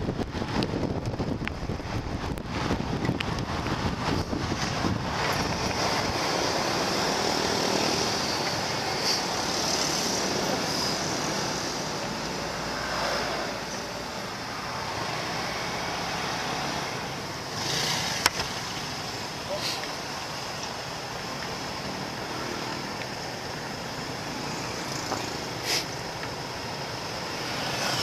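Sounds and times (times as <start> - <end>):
road noise: 0.0 - 28.0
rushing wind: 0.0 - 28.0
constant high hiss: 0.1 - 28.0.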